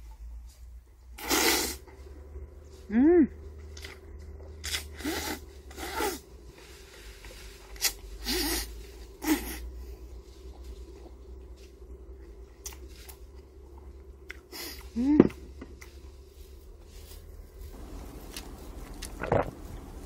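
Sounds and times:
steady low hum: 0.0 - 20.0
slurps and mouth sounds: 1.2 - 1.8, 7.8 - 9.7
person humming mm: 14.5 - 15.5.

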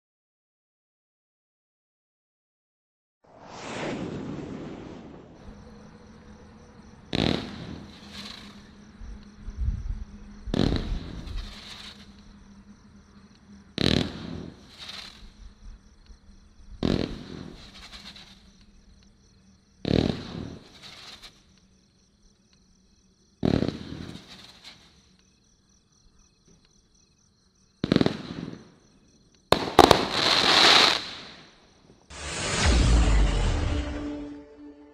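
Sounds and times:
fireworks hiss and crackle: 3.3 - 6.1, 7.1 - 12.5, 13.8 - 21.9, 23.4 - 25.2, 27.8 - 28.8, 29.5 - 34.3
fireworks bangs: 3.3 - 6.2, 7.0 - 8.8, 10.5 - 12.1, 13.8 - 15.3, 16.8 - 18.5, 19.8 - 21.4, 23.4 - 24.9, 27.8 - 28.7, 29.5 - 31.5, 32.1 - 34.8.

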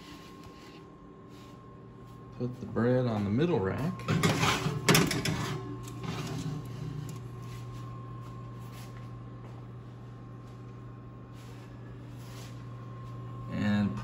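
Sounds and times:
steady low hum: 0.0 - 14.0
metal clanks and scrapes: 4.0 - 6.6.

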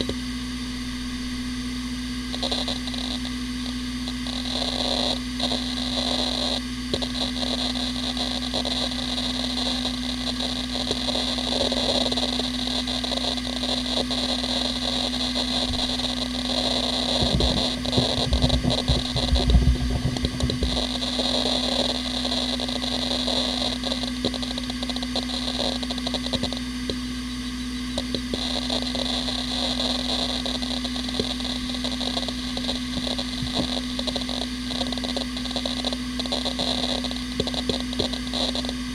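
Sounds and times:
hard drive whine and hiss: 0.0 - 38.9
hard drive heads ticking: 2.3 - 38.9
low thuds: 17.2 - 20.8.

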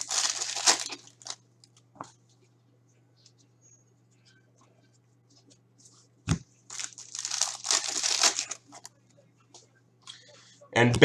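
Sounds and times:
wrapper crinkling and tearing: 0.0 - 1.4, 6.7 - 8.9.

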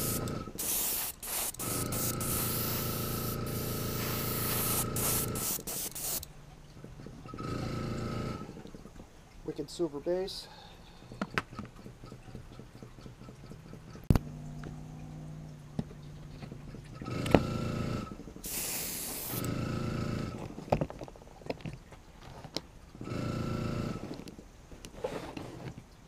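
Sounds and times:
airbrush spraying: 0.0 - 6.3, 18.4 - 19.5.

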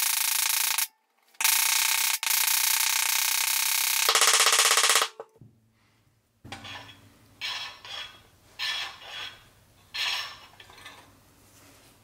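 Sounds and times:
metal toy parts scraping: 6.6 - 11.1.

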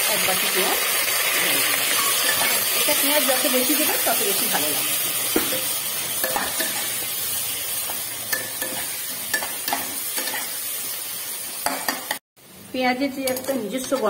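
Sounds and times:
onions sizzling in hot oil: 0.0 - 14.0
metal spatula scraping pan: 4.6 - 7.2, 7.9 - 10.6.

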